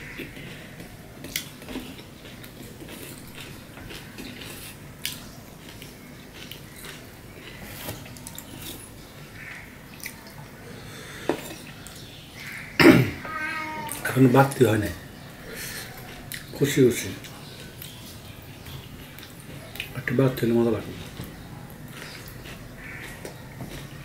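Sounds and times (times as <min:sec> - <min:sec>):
wet chewing: 0:00.0 - 0:10.6, 0:15.4 - 0:24.0.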